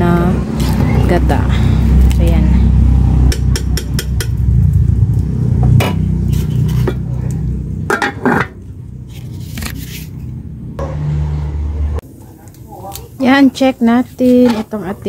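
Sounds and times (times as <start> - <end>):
low rumble: 0.0 - 9.4
metal ladle scraping in pot: 6.2 - 7.0
metal lid clanking onto pot: 7.9 - 8.6.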